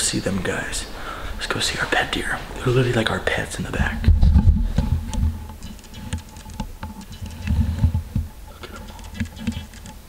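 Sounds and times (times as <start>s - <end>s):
dull low thumps: 3.6s - 8.5s.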